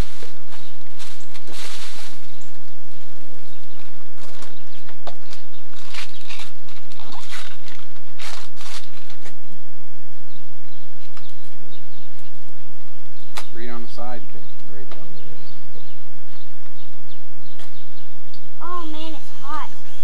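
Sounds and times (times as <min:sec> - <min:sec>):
gift wrap and plastic rustling: 0:00.0 - 0:02.4, 0:03.8 - 0:09.4.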